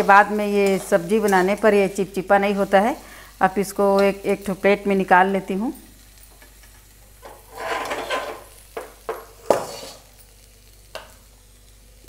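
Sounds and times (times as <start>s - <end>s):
metal spatula scraping pan: 7.2s - 8.5s, 9.4s - 10.1s.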